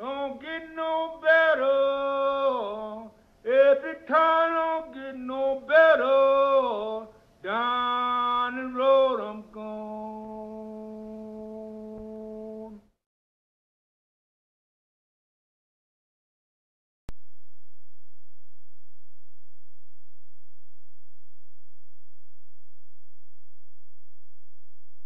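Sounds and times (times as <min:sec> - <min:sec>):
solo voice singing: 0:00.0 - 0:12.9.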